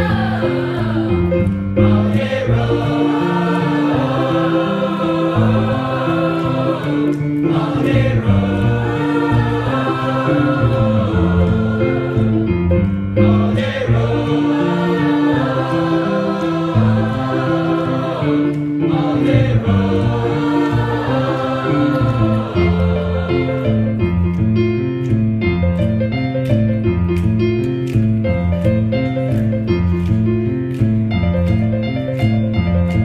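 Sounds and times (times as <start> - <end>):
choir singing in harmony: 0.0 - 24.1
electric keyboard: 0.0 - 33.0.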